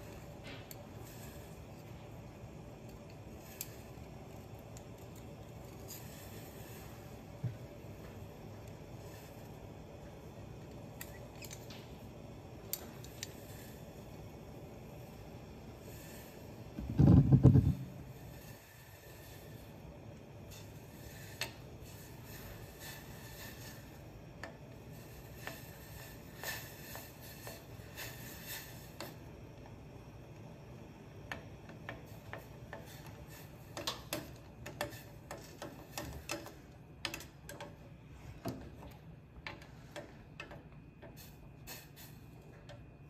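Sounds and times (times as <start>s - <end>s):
pot ticking and clicking: 28.9s - 37.8s.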